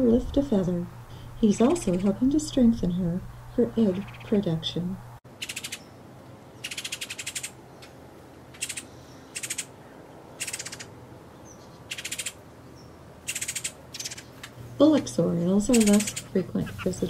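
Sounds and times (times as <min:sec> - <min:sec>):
oriole rattling chatter calls: 0:14.9 - 0:17.0.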